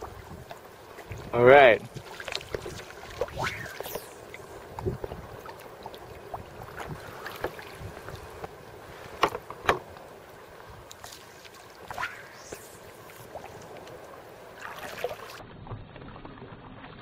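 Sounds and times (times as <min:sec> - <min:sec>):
wind on microphone: 0:00.0 - 0:09.4, 0:11.8 - 0:13.8
sea water lapping: 0:00.0 - 0:15.4
water splashes and drips: 0:00.0 - 0:17.0.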